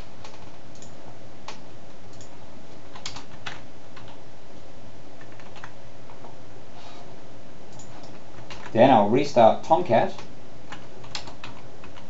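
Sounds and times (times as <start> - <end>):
steady background hiss: 0.0 - 12.0
keyboard keystroke clicks: 0.2 - 2.4, 10.2 - 12.0.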